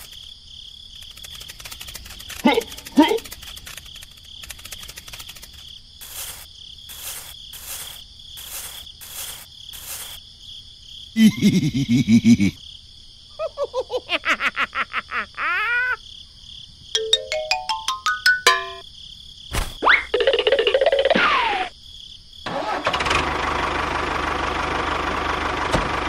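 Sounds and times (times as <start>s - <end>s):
insects trilling and chirping: 0.0s - 22.5s
falling notes with upward slide: 17.0s - 18.8s.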